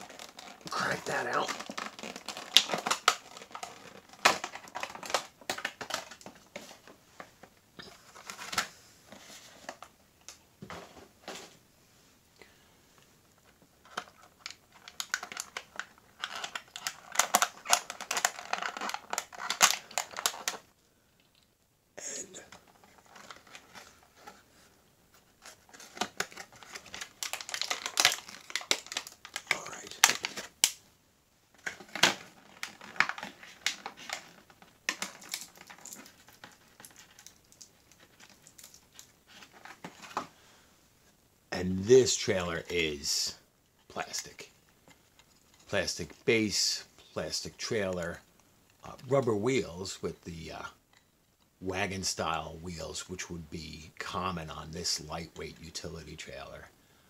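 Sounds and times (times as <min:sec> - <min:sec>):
plastic packaging crackling: 0:00.0 - 0:06.9, 0:13.8 - 0:20.7, 0:22.5 - 0:24.4, 0:25.3 - 0:30.9, 0:31.5 - 0:40.3.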